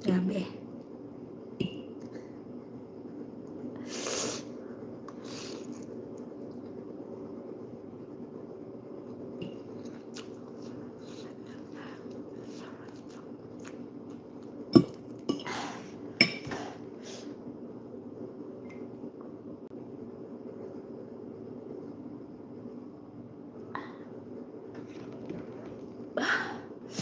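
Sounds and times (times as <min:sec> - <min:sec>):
chewing: 0:09.5 - 0:15.3.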